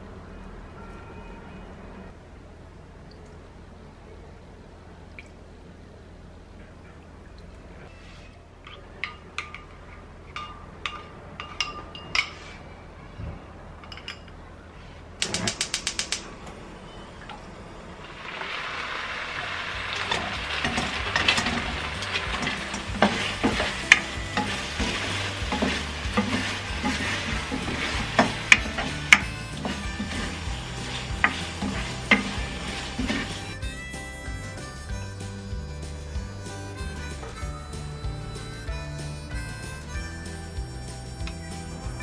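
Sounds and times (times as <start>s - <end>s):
sauce sizzling in a wok: 18.0s - 33.6s
wooden spatula scraping a pan: 20.0s - 33.6s.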